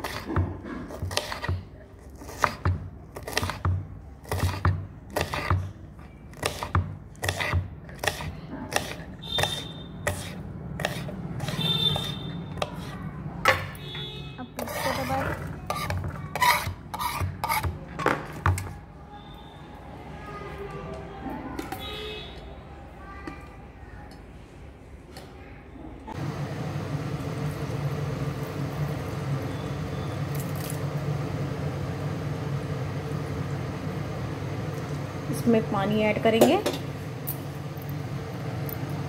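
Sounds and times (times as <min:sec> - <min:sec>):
knife chopping on plastic board: 0:02.3 - 0:05.7, 0:06.4 - 0:12.8.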